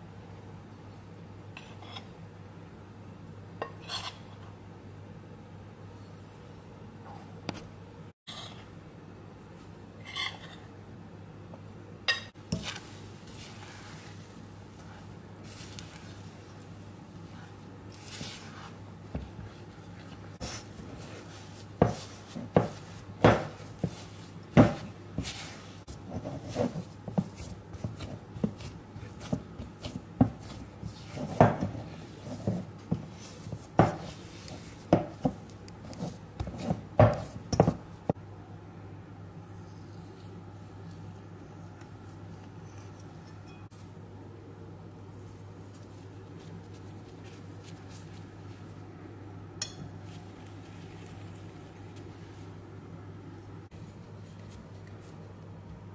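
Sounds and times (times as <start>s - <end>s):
spatula scraping against bowl: 10.0s - 10.6s, 20.4s - 37.8s.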